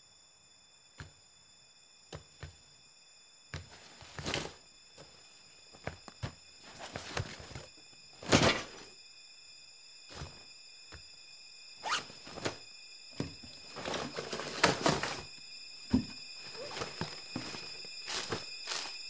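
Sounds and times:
rustling: 3.7s - 5.2s, 6.1s - 8.9s, 13.2s - 15.3s, 15.9s - 19.0s.

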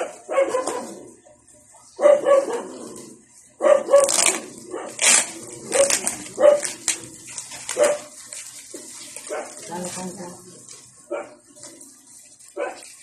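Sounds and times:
dog barking: 0.0s - 1.0s, 2.0s - 2.8s, 3.6s - 5.0s, 5.7s - 6.8s, 7.7s - 8.1s, 9.3s - 9.6s, 11.1s - 11.4s, 12.6s - 12.9s
plastic wrapping crinkling and tearing: 3.9s - 11.0s.

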